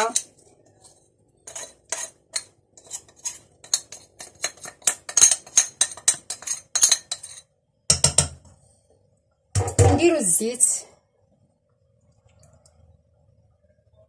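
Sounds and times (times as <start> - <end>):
utensil clinking on porcelain plate: 1.5 - 8.4.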